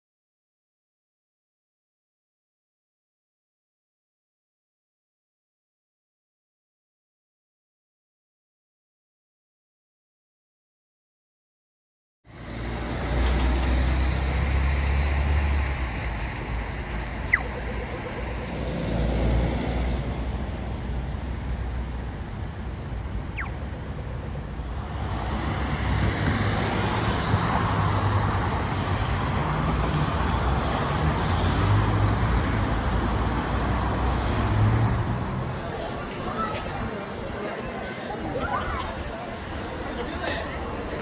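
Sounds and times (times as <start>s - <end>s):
traffic rumble: 12.3s - 41.0s.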